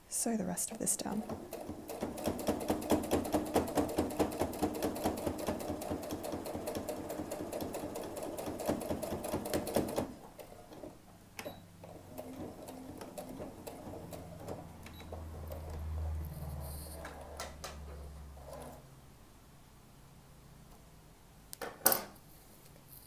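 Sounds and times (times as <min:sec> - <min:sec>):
sewing machine stitching: 0:01.1 - 0:18.8.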